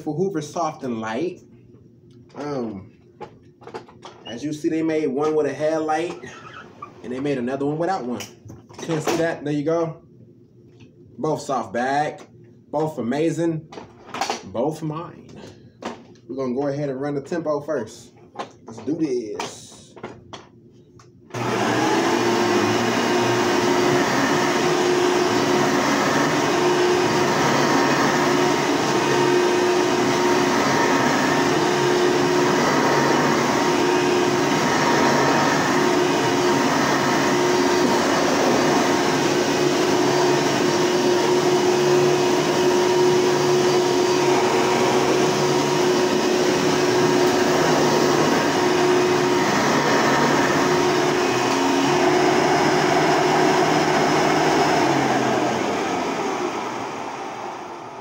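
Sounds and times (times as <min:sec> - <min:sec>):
vacuum cleaner running: 0:21.3 - 0:58.0
vacuum motor winding down: 0:21.3 - 0:58.0.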